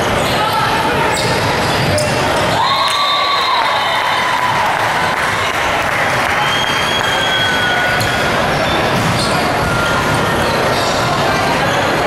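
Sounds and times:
crowd clapping and cheering: 2.4 - 8.6.

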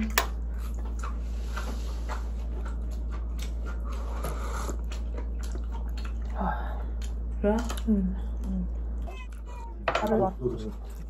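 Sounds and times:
steady low hum: 0.0 - 11.0
person sipping: 3.9 - 5.6.

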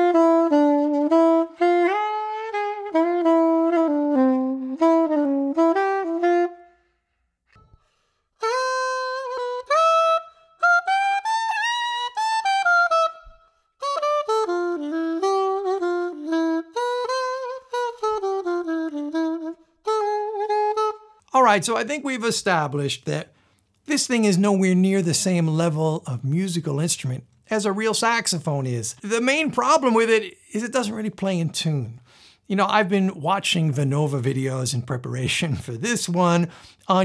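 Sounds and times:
reed wind instrument melody: 0.0 - 7.7, 8.4 - 22.2
soprano saxophone melody: 0.0 - 21.5.

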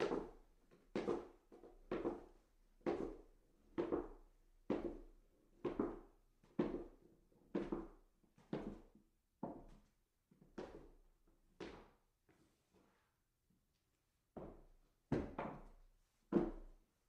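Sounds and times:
footsteps walking up stairs: 14.4 - 16.8.

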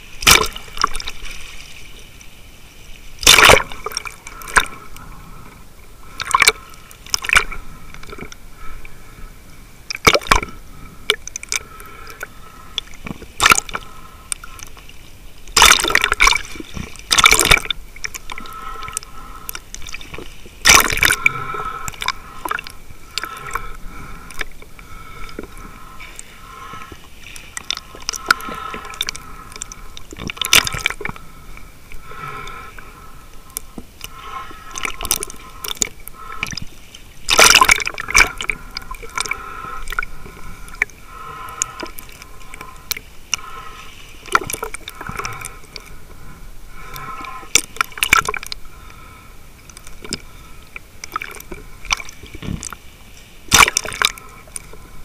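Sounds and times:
underwater water sloshing: 0.0 - 55.0.

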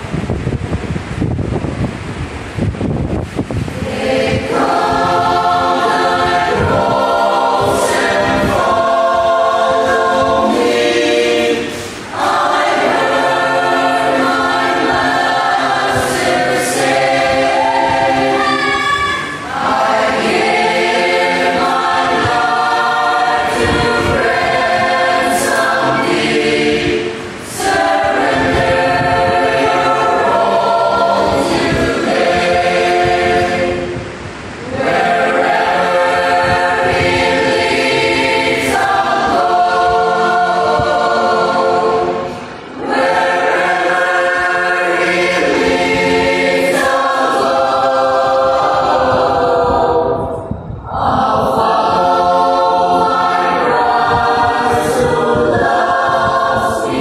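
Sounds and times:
mixed choir singing a hymn: 3.1 - 57.0.

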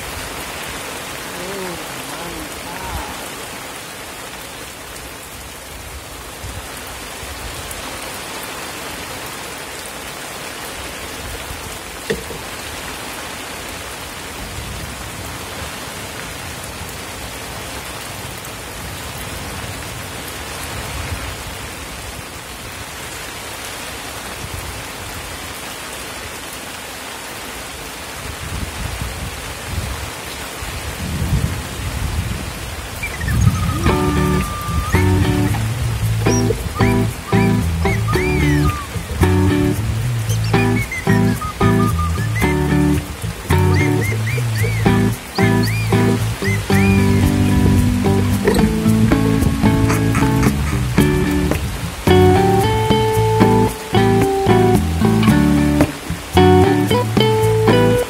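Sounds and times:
rain falling on water: 0.0 - 58.0
low rumbling: 33.3 - 53.4.

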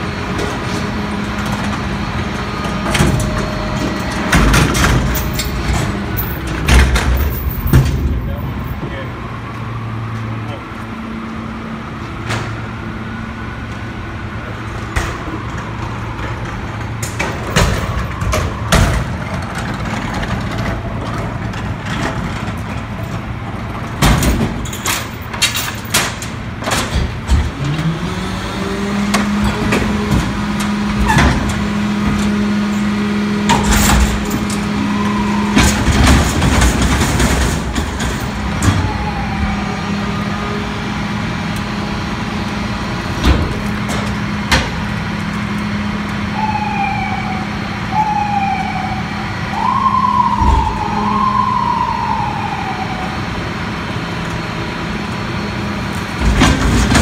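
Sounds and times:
hydraulics lifting dumpster: 0.0 - 57.0
loud metal bangs: 33.4 - 39.0.

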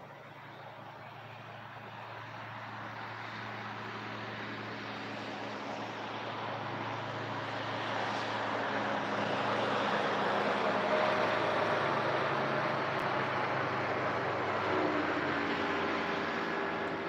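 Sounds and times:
motorboat passing: 0.0 - 17.0.

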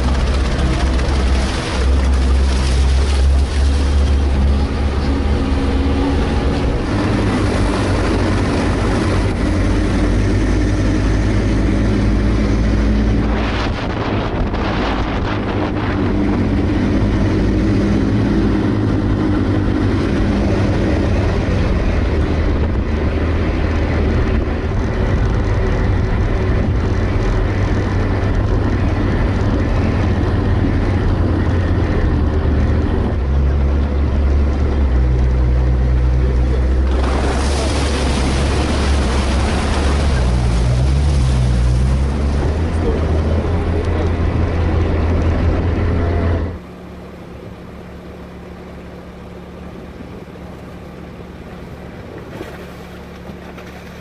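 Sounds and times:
atv engine droning: 0.0 - 54.0
loud rushing noise: 36.6 - 43.8.

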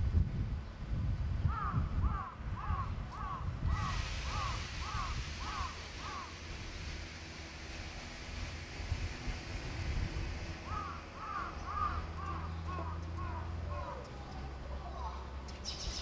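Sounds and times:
steady hiss: 3.6 - 13.6
bird calling: 10.7 - 16.0.

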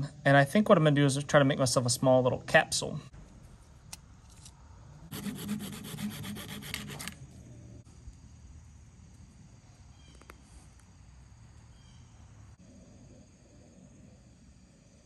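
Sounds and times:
hacksaw rasping through plastic: 5.1 - 7.2.

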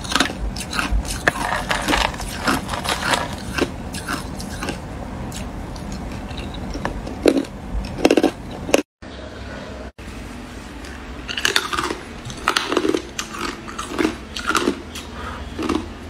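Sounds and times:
ice cubes crunched between teeth: 0.0 - 4.8.

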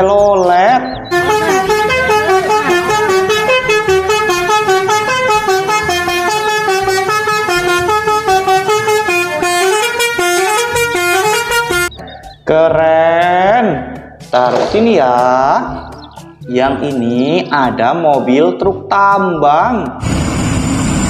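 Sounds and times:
bus horn playing a melody: 1.1 - 12.0.

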